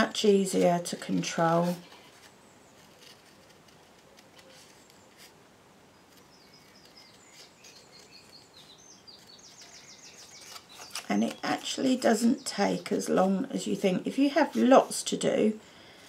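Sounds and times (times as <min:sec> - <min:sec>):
bird chirping: 0:05.9 - 0:14.1.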